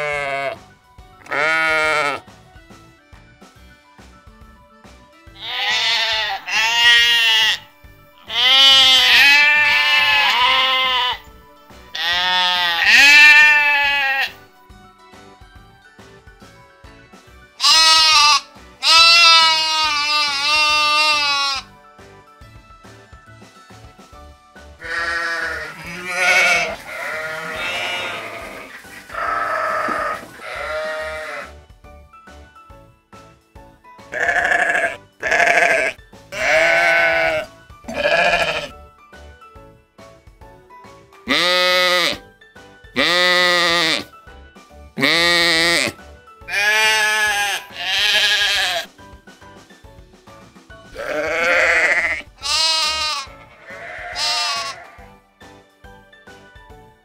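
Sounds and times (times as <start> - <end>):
sheep bleating: 0.0 - 0.6, 1.3 - 2.2, 5.4 - 7.6, 8.2 - 11.2, 11.9 - 14.4, 17.6 - 21.7, 24.8 - 31.5, 34.1 - 38.7, 41.3 - 42.2, 43.0 - 44.1, 45.0 - 48.9, 51.0 - 55.0
soft background music: 0.0 - 57.0.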